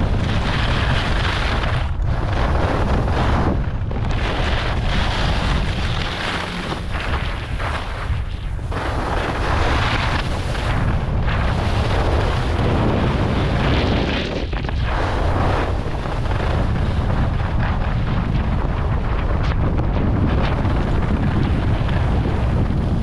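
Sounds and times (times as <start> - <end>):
wind buffeting microphone: 0.0 - 23.0
skis scraping on snow: 0.1 - 17.8.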